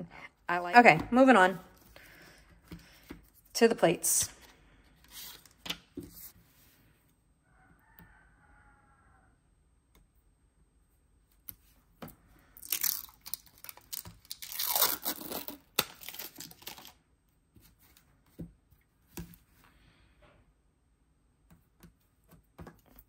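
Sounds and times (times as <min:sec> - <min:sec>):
plastic film peeling: 0:12.6 - 0:17.0.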